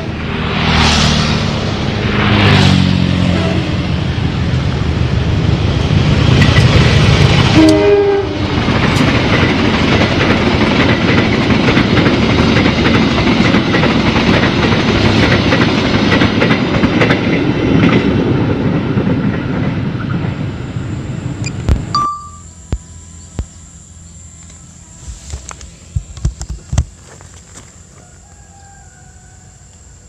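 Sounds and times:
train wheels rumbling on rails: 1.3s - 21.9s.

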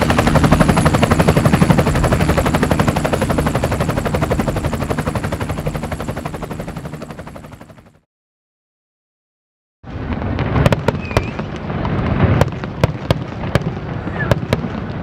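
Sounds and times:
helicopter rotors chopping: 0.0s - 8.0s.

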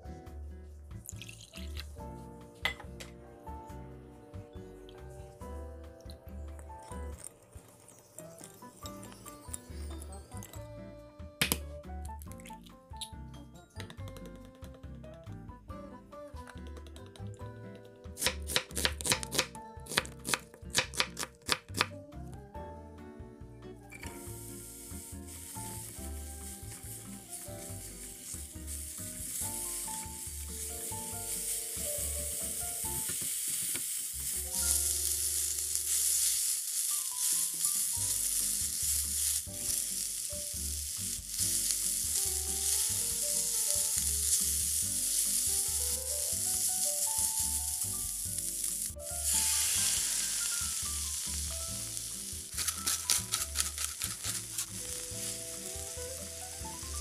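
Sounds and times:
soft background music: 0.0s - 57.0s
onions and chicken sizzling: 18.1s - 21.9s, 24.1s - 57.0s.

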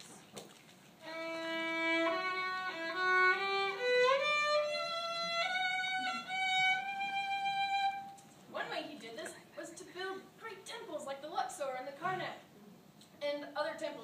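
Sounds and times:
solo violin slow melody: 1.0s - 8.2s.

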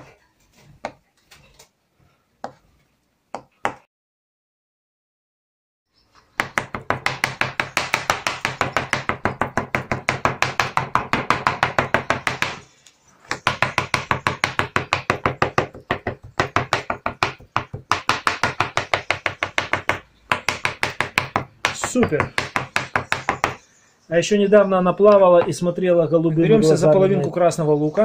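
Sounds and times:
knife chopping on plastic board: 3.3s - 3.9s, 6.4s - 12.6s, 13.3s - 23.6s.

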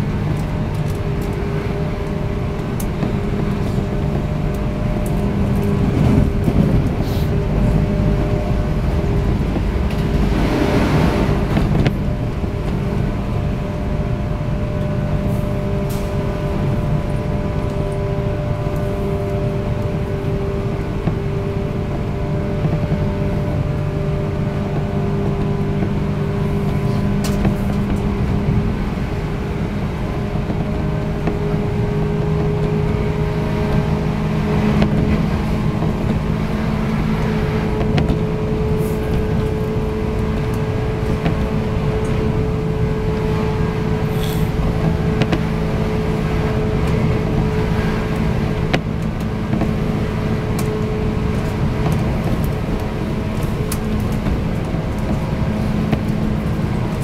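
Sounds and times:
train motor hum: 0.0s - 57.0s
wheels rolling on rails: 15.7s - 57.0s.

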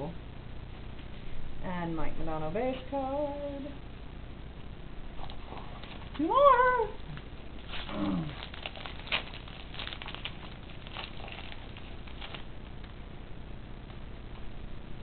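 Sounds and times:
foil pack tearing and crinkling: 7.6s - 12.6s.

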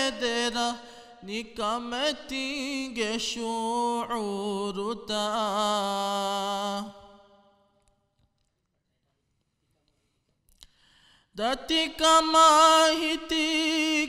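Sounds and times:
man singing devotional chant: 0.0s - 7.2s, 11.4s - 14.0s.

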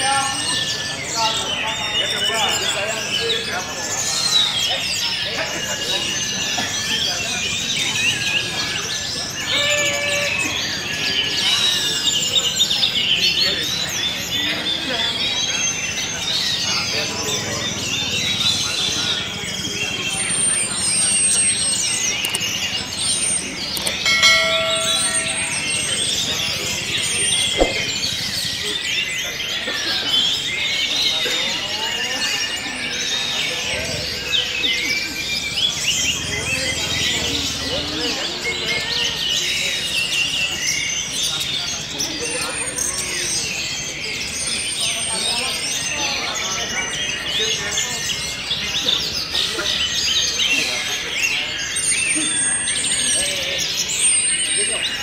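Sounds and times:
chorus of songbirds: 0.0s - 55.0s
thrushes singing: 22.0s - 28.8s
steady ringing tone: 23.8s - 28.0s.

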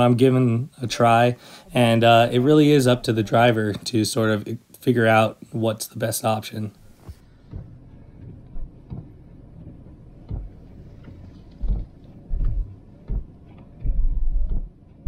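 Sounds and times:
dull low thumps: 1.0s - 4.3s, 6.7s - 15.0s
engine idling hum: 6.8s - 15.0s.

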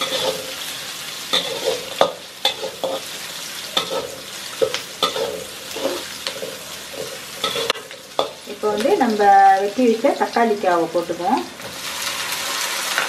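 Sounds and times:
metal spatula scraping pan: 0.0s - 0.6s, 1.3s - 3.1s, 3.8s - 8.4s
onions sizzling in oil: 0.0s - 13.0s.

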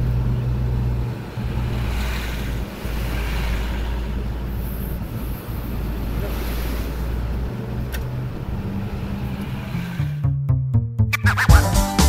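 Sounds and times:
low engine hum: 0.0s - 11.1s.

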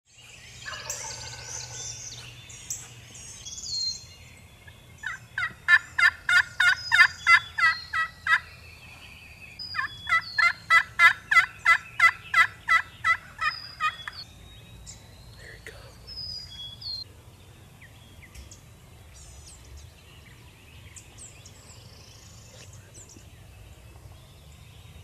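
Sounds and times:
turkey yelping: 0.6s - 1.8s, 5.0s - 8.4s, 9.8s - 14.2s.

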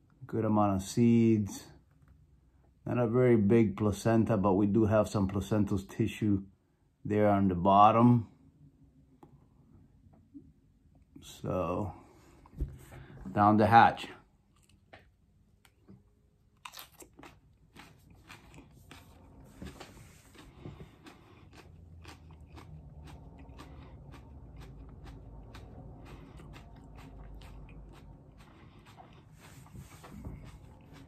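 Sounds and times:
man chewing crunchy chili pepper: 14.3s - 14.9s, 15.6s - 31.0s.

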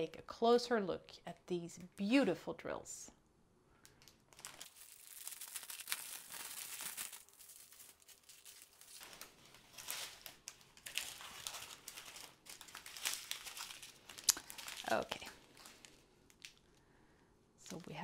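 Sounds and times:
plastic wrapping crinkling: 3.9s - 16.8s.

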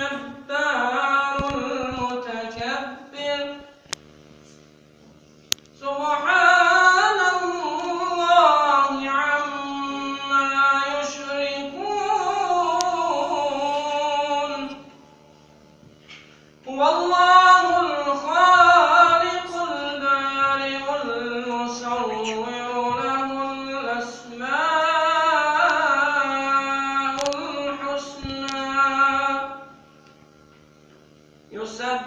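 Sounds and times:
man chanting recitation: 0.0s - 3.8s, 5.8s - 15.0s, 16.6s - 29.9s, 31.5s - 32.0s.

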